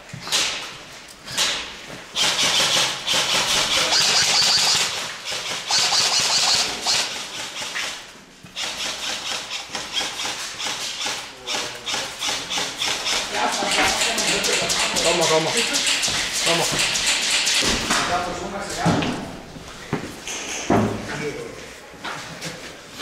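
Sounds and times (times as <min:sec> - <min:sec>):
airsoft rifles firing bursts: 0:01.3 - 0:08.0, 0:08.6 - 0:17.7.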